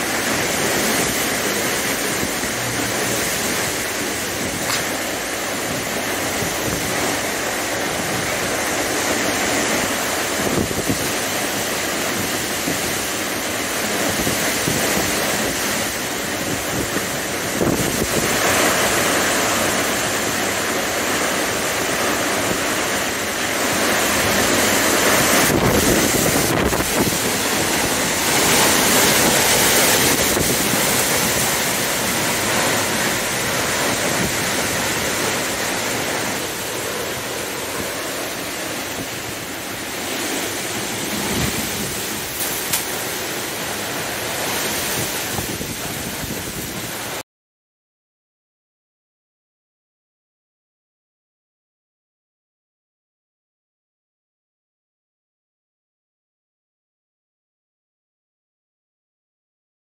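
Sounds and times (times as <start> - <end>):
strong wind through trees: 0.0 - 47.2
wind buffeting microphone: 0.0 - 47.2
sharp crack: 4.6 - 5.2.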